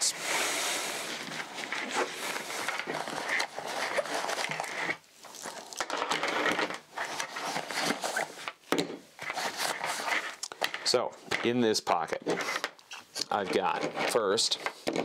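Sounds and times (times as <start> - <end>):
fabric bag rustling and crinkling: 1.0 - 5.9.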